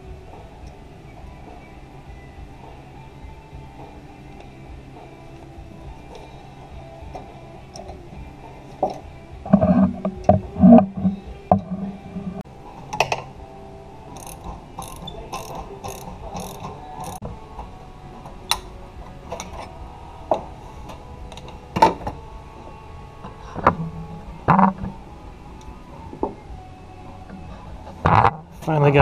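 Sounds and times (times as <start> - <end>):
quick evenly spaced metal clicks: 14.1 - 17.2.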